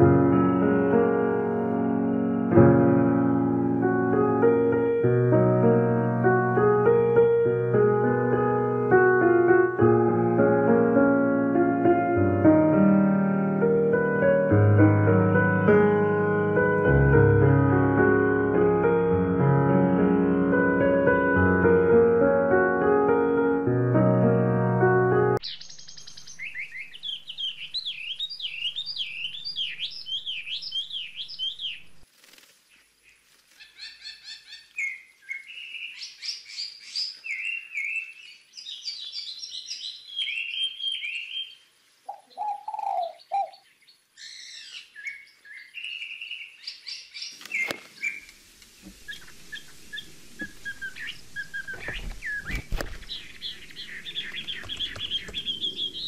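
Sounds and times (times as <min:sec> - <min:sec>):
birds chirping and twittering: 0:25.4 - 0:56.0
low bird call: 0:40.2 - 0:43.6, 0:47.3 - 0:56.0
rustling: 0:47.3 - 0:55.7.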